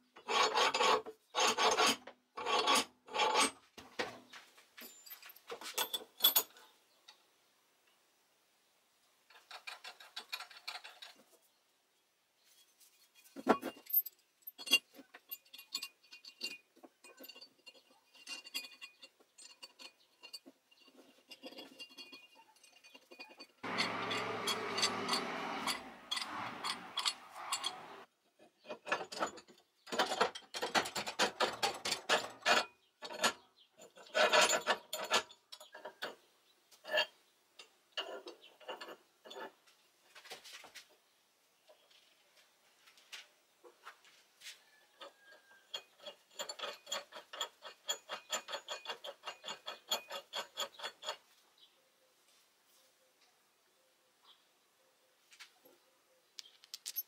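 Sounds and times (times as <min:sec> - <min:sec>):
steel parts clinking: 0:13.2 - 0:28.1, 0:56.4 - 0:57.0
steel scraping over wooden bench: 0:23.6 - 0:28.1.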